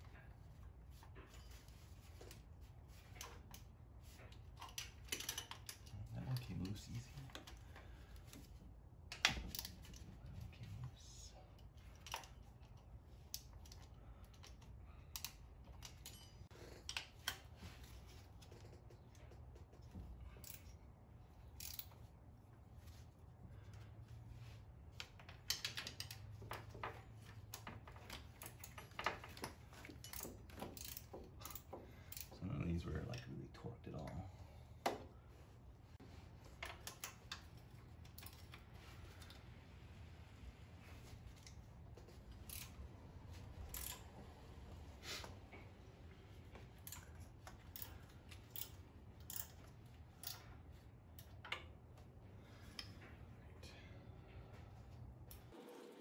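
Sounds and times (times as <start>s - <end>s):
steady low hum: 0.0s - 55.8s
hand tools clicking and clinking: 3.1s - 8.4s, 11.7s - 17.5s, 25.0s - 32.4s, 46.7s - 50.6s
ratchet and wrench clicking: 27.5s - 32.4s, 42.3s - 42.8s, 43.6s - 44.1s, 46.8s - 50.5s.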